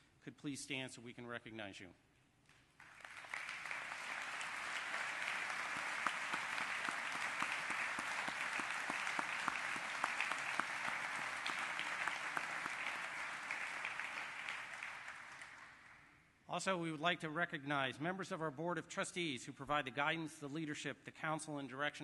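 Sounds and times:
audience applauding: 0:02.8 - 0:16.0.

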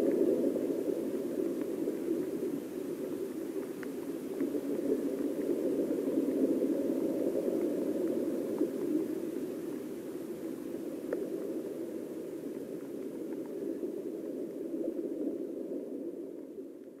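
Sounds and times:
faint ticks: 0:00.0 - 0:15.4
muffled underwater river rush: 0:00.0 - 0:17.0.

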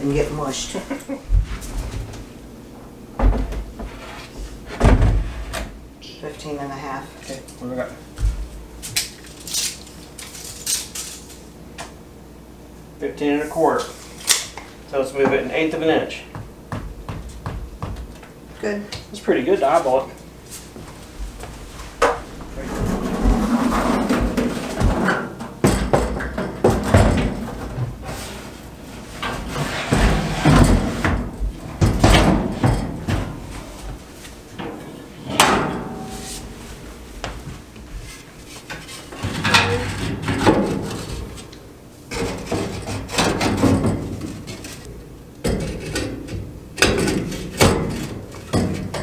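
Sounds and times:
metal firebox knocks and scrapes: 0:22.6 - 0:28.4, 0:29.1 - 0:33.4, 0:38.1 - 0:41.4, 0:42.1 - 0:49.0.

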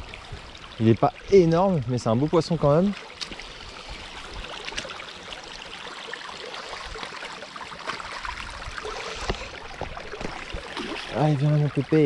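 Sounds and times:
river water flowing: 0:00.0 - 0:12.0
small clicks and splashes: 0:02.6 - 0:12.0.

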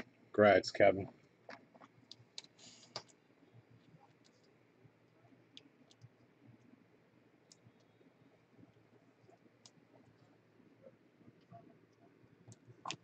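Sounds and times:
faint clicks: 0:05.5 - 0:06.7, 0:07.4 - 0:10.3.

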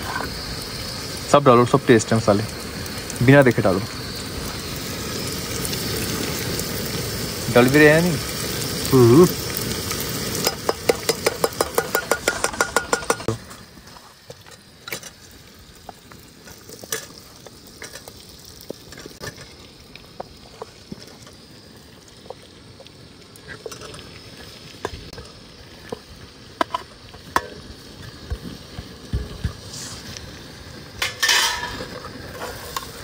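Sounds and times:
masala sizzling in pot: 0:00.0 - 0:33.0
metal spoon knocking against pot: 0:10.6 - 0:13.3.

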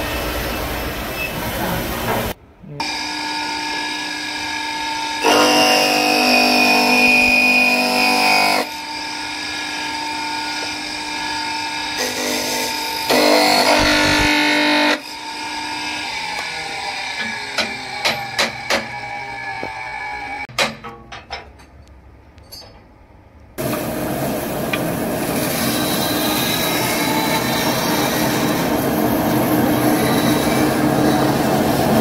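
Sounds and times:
electric motor whine: 0:13.0 - 0:17.5.

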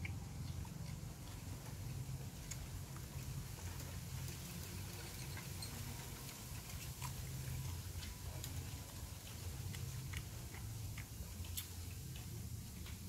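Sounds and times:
person chewing: 0:00.0 - 0:13.0
steady low hum: 0:00.0 - 0:13.0.

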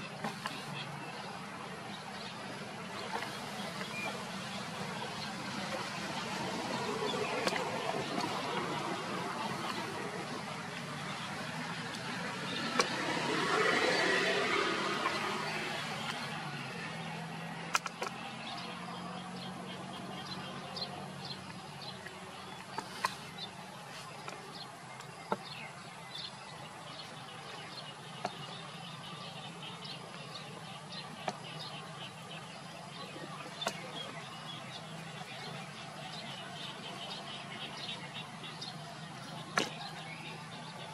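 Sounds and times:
small birds chirping: 0:00.0 - 0:40.9
sharp isolated clicks: 0:17.7 - 0:18.2.

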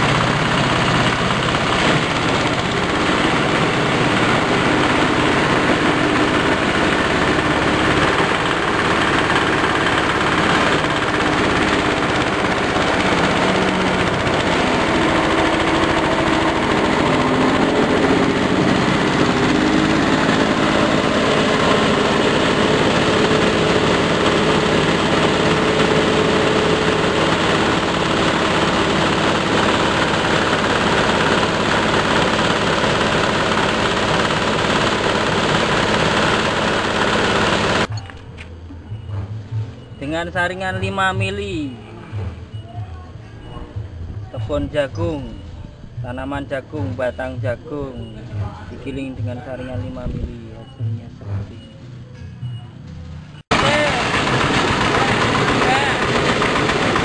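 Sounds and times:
chopper grinding stalks rattling: 0:00.0 - 0:38.0, 0:53.4 - 0:57.0
engine drone: 0:00.0 - 0:57.0.

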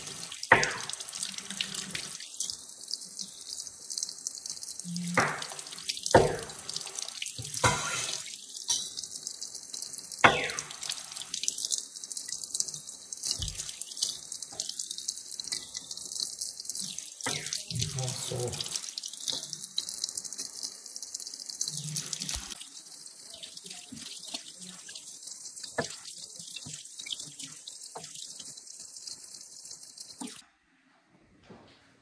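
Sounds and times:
tap running into sink: 0:00.5 - 0:01.0, 0:13.3 - 0:13.8.

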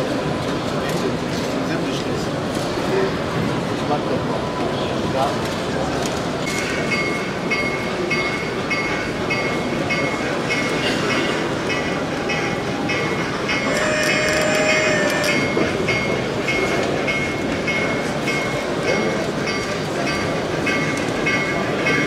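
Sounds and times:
hubbub of voices: 0:00.0 - 0:22.0
model train clicking: 0:12.8 - 0:15.6.

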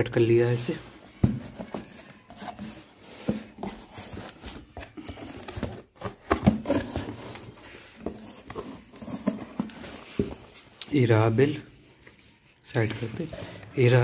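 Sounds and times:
cardboard box being opened: 0:01.0 - 0:10.7.

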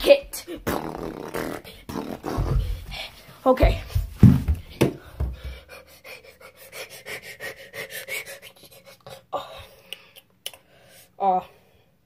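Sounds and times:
person panting: 0:04.6 - 0:11.7.

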